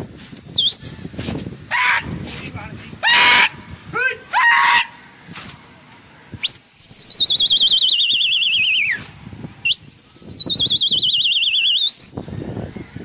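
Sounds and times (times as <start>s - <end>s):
loud warbling whistles: 0.0s - 1.0s, 6.4s - 12.3s.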